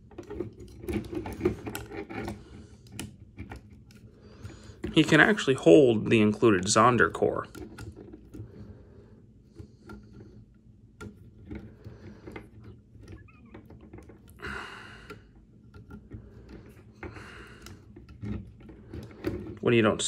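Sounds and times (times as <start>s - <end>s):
small plastic parts clicking: 9.6s - 19.6s.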